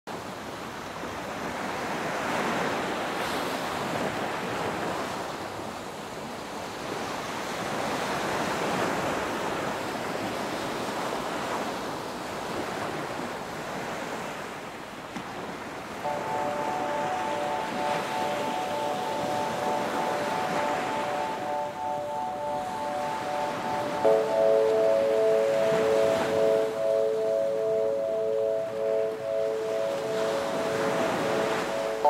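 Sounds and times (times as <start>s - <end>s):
ocean waves washing onto beach: 6.1s - 32.0s
steady musical tones: 16.0s - 32.0s.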